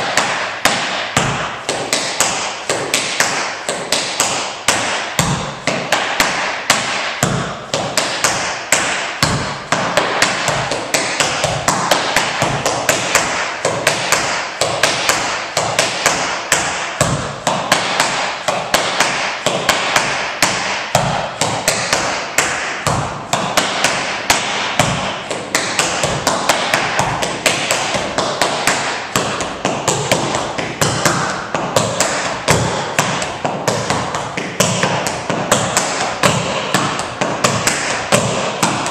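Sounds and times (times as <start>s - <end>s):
tap shoes on hardwood floor: 0.0s - 38.9s.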